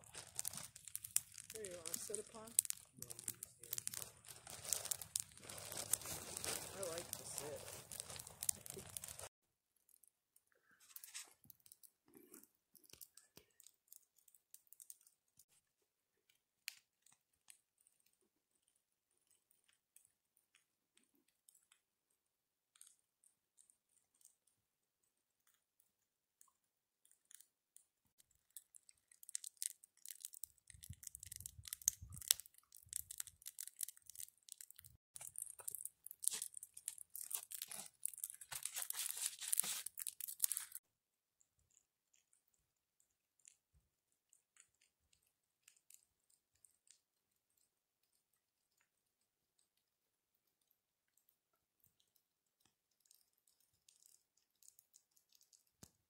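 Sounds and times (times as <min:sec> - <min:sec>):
campfire crackling and popping: 0:00.0 - 0:15.5, 0:28.2 - 0:40.8.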